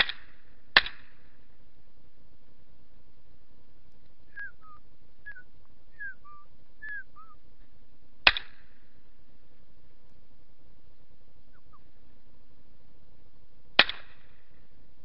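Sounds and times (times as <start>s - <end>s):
whistled falling notes: 4.3s - 5.4s, 6.0s - 7.4s
shotgun shot with echo: 13.8s - 14.4s.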